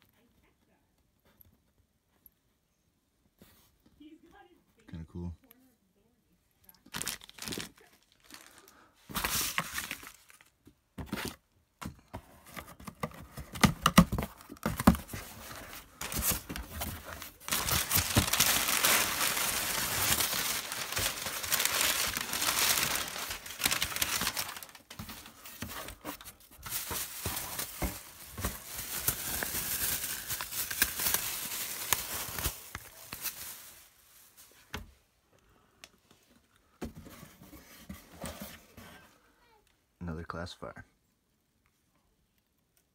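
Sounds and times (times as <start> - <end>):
packaging tearing and crinkling: 6.9 - 10.5, 13.4 - 33.9.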